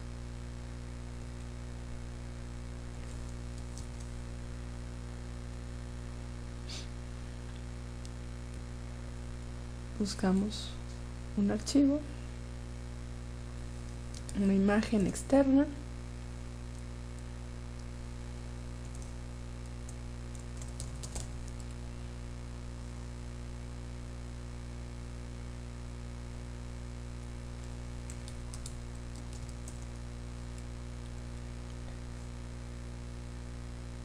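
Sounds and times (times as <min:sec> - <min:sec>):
electrical hum: 0:00.0 - 0:34.0
keyboard keys tapping: 0:20.3 - 0:21.6, 0:28.1 - 0:29.9.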